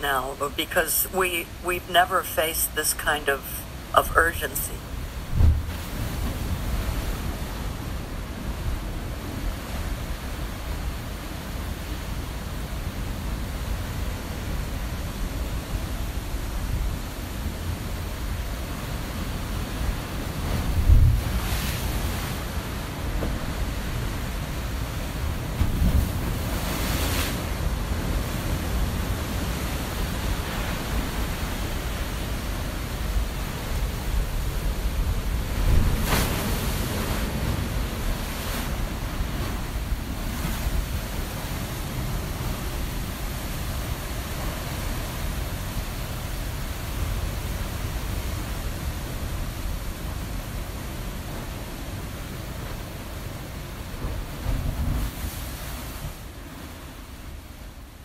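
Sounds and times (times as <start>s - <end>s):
ocean surf washing in: 0.0s - 58.0s.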